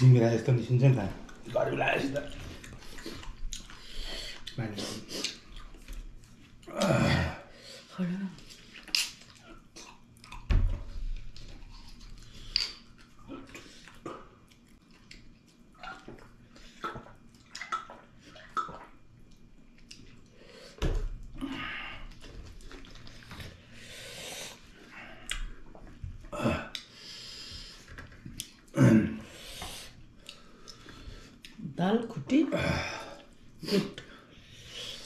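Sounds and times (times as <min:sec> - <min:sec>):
chewing and lip-smacking: 0:01.2 - 0:06.7, 0:08.4 - 0:20.4, 0:22.1 - 0:23.8, 0:27.8 - 0:28.7, 0:29.9 - 0:31.6.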